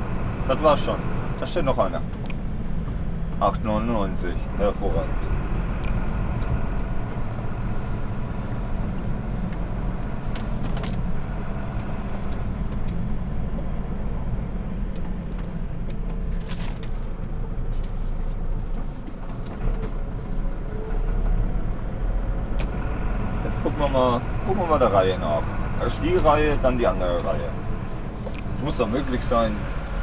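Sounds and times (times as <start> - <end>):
diesel engine low rumble: 0.0 - 30.0
cab rattles and clicks: 9.4 - 11.1.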